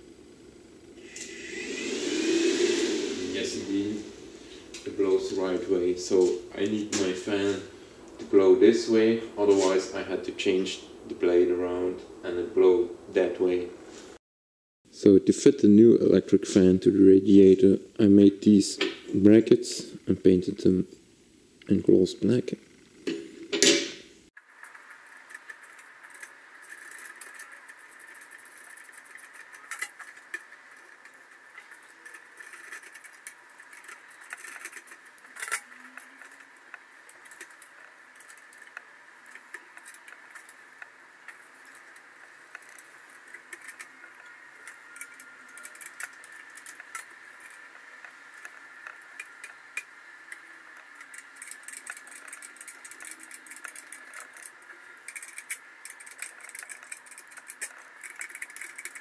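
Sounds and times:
faint high hum: 0.0s - 14.1s.

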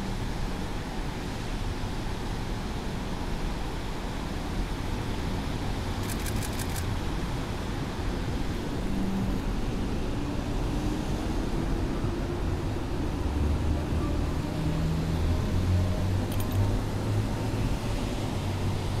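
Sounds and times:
low traffic rumble: 0.0s - 19.0s
noise off wet street: 0.0s - 19.0s
faint clicks: 16.3s - 16.7s.

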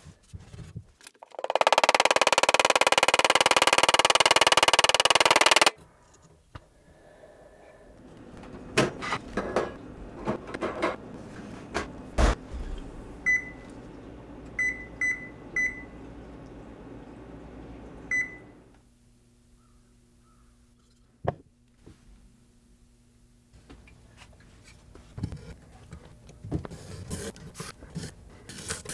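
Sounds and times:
heavy thud: 12.2s - 13.1s
oven keypad beeping: 13.2s - 13.7s, 14.6s - 16.0s, 18.1s - 18.5s.

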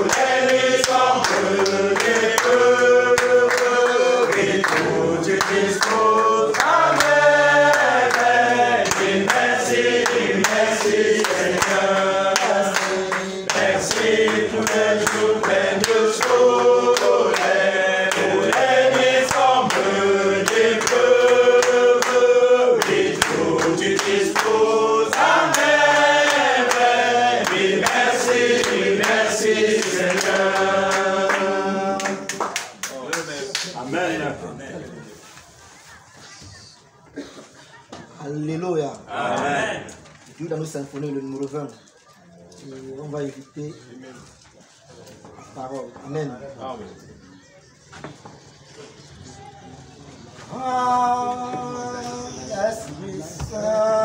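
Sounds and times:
hand clapping in time: 0.0s - 33.7s
congregation singing: 0.0s - 35.3s, 39.0s - 40.1s, 50.3s - 54.0s.

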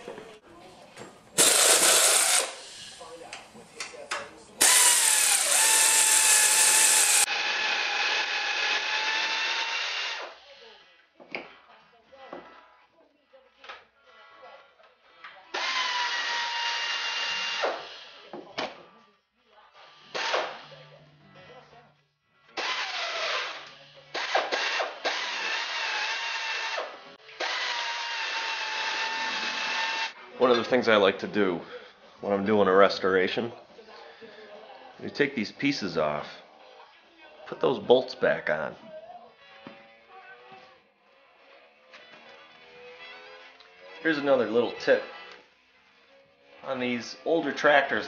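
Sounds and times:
electric drill whining: 1.4s - 2.6s, 4.6s - 10.4s, 15.6s - 18.3s, 20.0s - 20.8s, 22.6s - 30.2s, 41.4s - 47.3s.

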